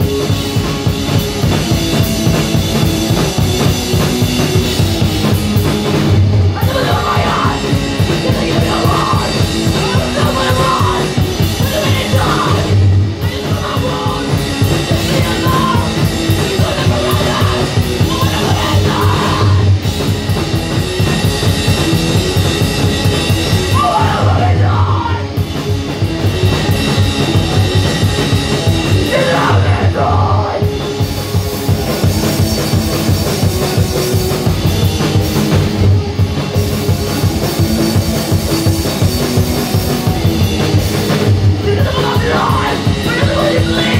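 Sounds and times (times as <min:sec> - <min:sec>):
rock band playing: 0:00.0 - 0:43.9
person singing: 0:06.6 - 0:19.8, 0:23.7 - 0:25.3, 0:29.0 - 0:30.8, 0:41.6 - 0:43.9.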